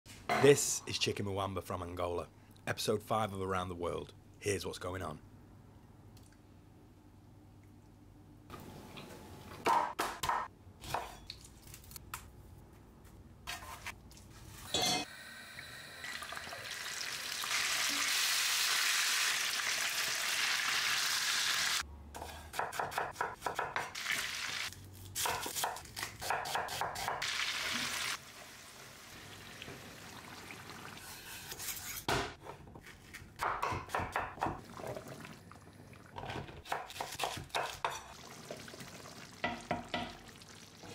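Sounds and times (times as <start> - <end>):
knife chopping on wooden board: 9.6 - 11.2, 22.2 - 23.9, 25.2 - 27.2, 33.4 - 34.6
chicken sizzling in hot oil: 16.1 - 21.8, 27.2 - 31.0.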